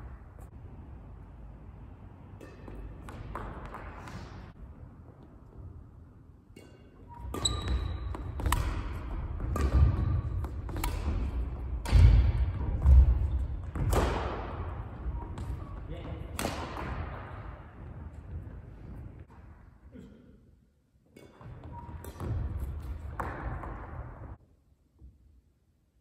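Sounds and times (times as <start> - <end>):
rackets hitting shuttlecock: 2.2 - 4.6, 6.4 - 17.9, 21.1 - 24.3.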